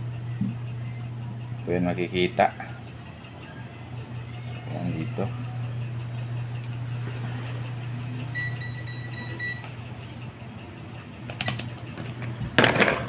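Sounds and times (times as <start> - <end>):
steady low hum: 0.0 - 13.0
click: 6.2 - 6.8
multimeter beeping: 8.3 - 10.7
small parts clattering: 12.0 - 13.0.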